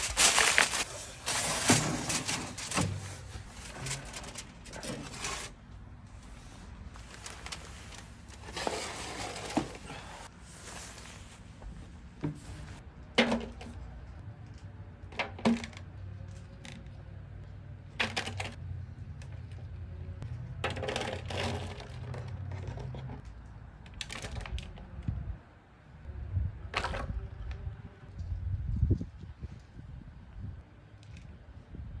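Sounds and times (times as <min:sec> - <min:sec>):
foil crinkling: 0:00.0 - 0:05.5.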